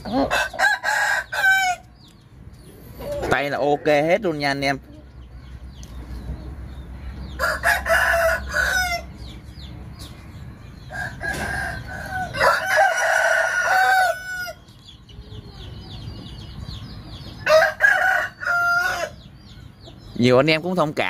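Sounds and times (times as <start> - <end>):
rooster crowing: 0.3 - 1.8, 7.4 - 9.1, 10.9 - 14.6, 17.4 - 19.2.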